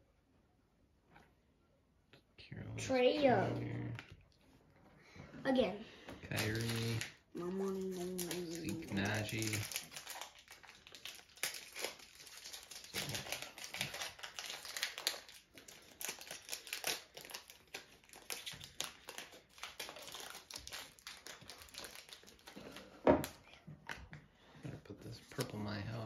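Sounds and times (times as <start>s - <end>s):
foil wrapper crinkling and tearing: 6.3s - 23.4s.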